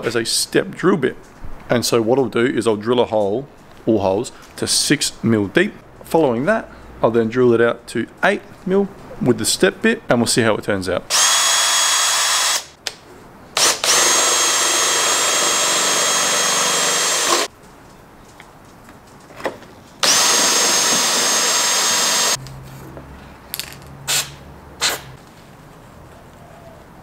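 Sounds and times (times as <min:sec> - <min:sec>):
cordless drill whining: 0:11.1 - 0:12.7, 0:13.6 - 0:17.5, 0:20.0 - 0:22.4.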